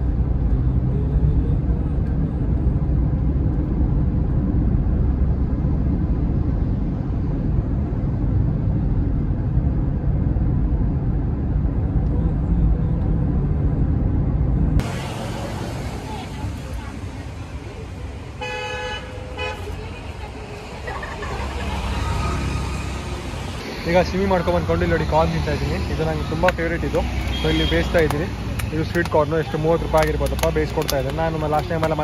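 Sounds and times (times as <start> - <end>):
car road and engine rumble: 0.0 - 32.0
outdoor street ambience: 0.0 - 32.0.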